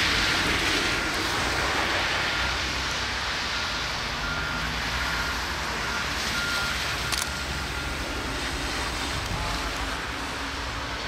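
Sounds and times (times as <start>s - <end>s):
traffic on slushy street: 0.0s - 11.0s
high electronic warning beep: 3.5s - 8.3s.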